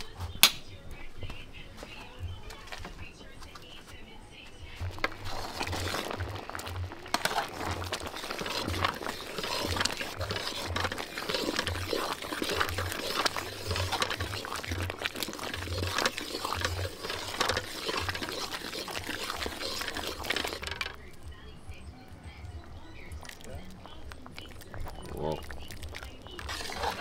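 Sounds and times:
utensils pots and dishes clattering: 0:04.8 - 0:21.1, 0:23.2 - 0:27.0.

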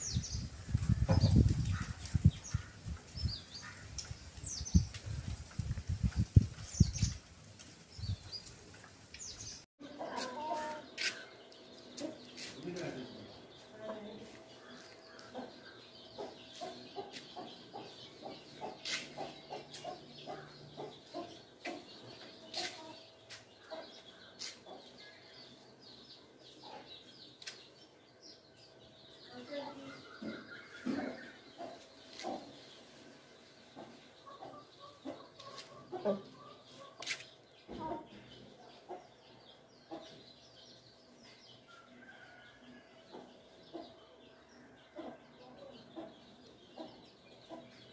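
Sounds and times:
small birds chirping: 0:00.0 - 0:47.9
faint chicken clucks: 0:13.7 - 0:25.3, 0:29.6 - 0:40.4, 0:41.2 - 0:47.9.

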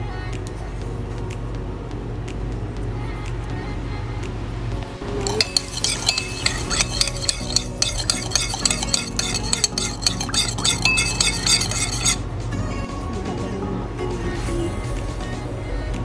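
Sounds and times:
metal spoon stirring in ceramic bowl: 0:05.2 - 0:12.2.

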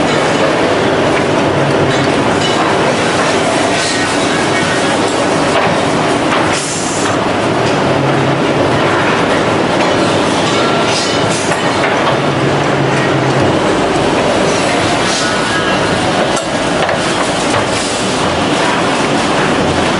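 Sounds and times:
machine clattering and rattling: 0:00.0 - 0:19.9.

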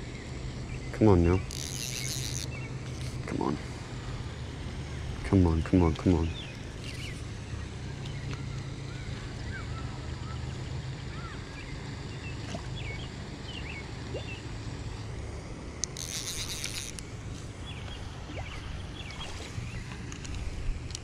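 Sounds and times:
steady low rumble: 0:00.0 - 0:16.0
small birds chirping: 0:00.1 - 0:15.1, 0:17.6 - 0:20.0.

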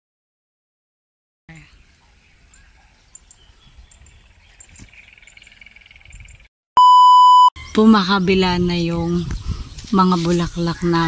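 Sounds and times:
short high chirps: 0:06.8 - 0:07.6.

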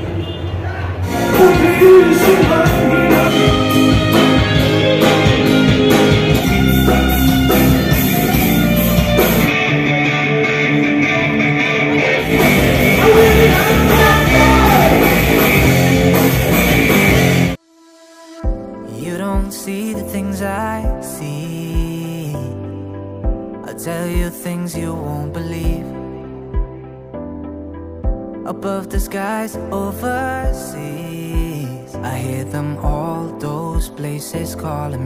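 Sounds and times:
rock band playing live: 0:01.1 - 0:17.6.

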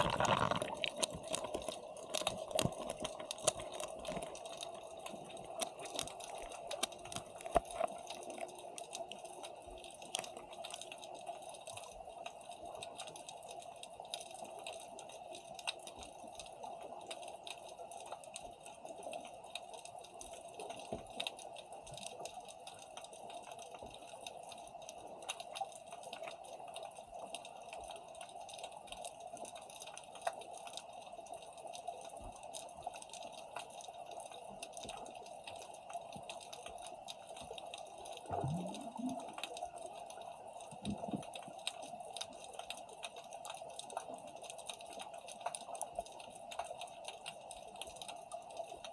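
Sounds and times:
underwater hum: 0:00.0 - 0:12.8, 0:34.4 - 0:43.1
faint crackling and clicks: 0:00.0 - 0:48.9.

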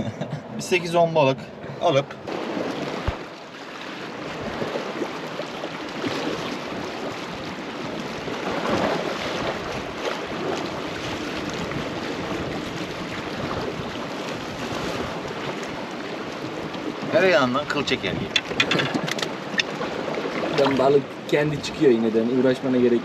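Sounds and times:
sea waves splashing on rocks: 0:02.2 - 0:21.3
wind buffeting microphone: 0:04.0 - 0:22.1.

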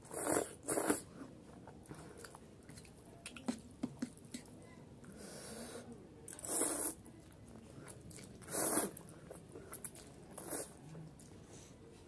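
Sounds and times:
person slurping noodles: 0:00.1 - 0:01.0, 0:06.3 - 0:07.0, 0:08.4 - 0:09.0, 0:10.4 - 0:10.8.

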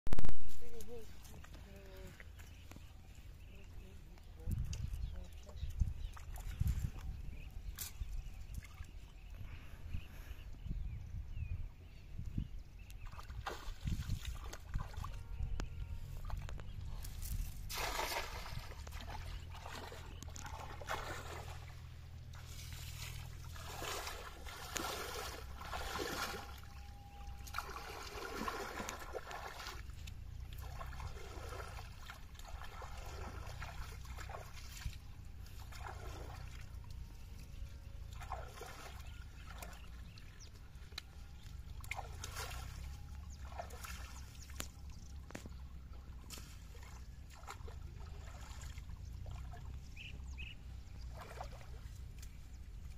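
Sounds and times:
river water splashing: 0:13.0 - 0:15.4, 0:16.1 - 0:52.9
steady low rumble: 0:14.4 - 0:28.3.

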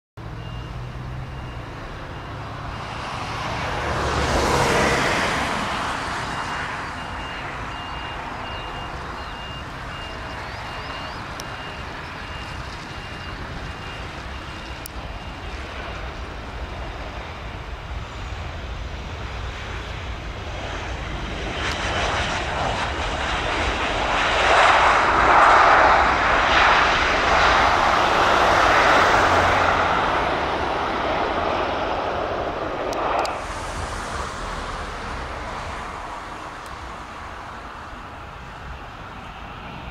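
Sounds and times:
faint repeated beep: 0:00.2 - 0:02.9, 0:06.3 - 0:15.8
jet engines roaring: 0:00.2 - 0:39.9.

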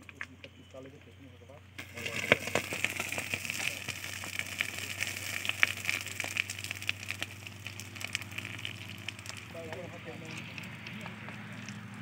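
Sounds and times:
cutting torch hissing and crackling: 0:01.8 - 0:11.3.

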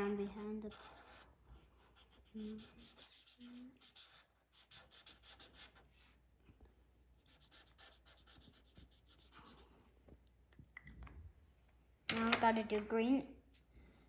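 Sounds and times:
marker scribbling on paper: 0:00.0 - 0:06.2, 0:07.2 - 0:09.7.

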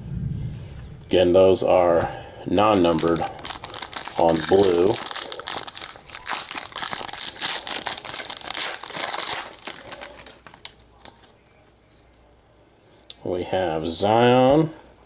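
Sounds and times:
foil wrapper crinkling: 0:02.6 - 0:11.8.

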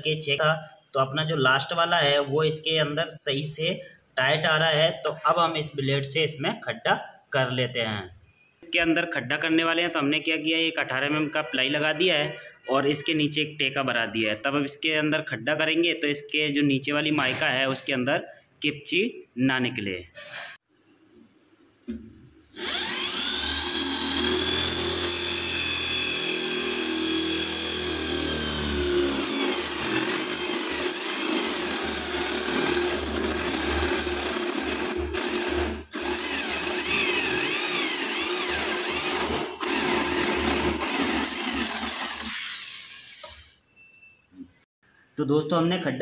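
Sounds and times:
electric drill boring into wood: 0:22.5 - 0:43.6.

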